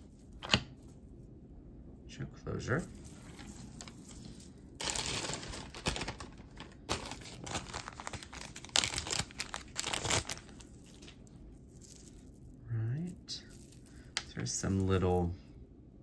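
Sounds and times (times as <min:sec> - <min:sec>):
packaging crinkling: 0:02.9 - 0:14.9.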